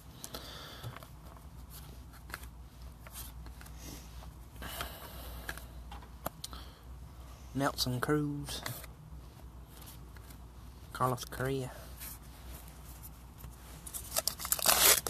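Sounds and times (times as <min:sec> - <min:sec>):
cards flicking and rustling: 0:00.2 - 0:03.9, 0:13.4 - 0:15.0.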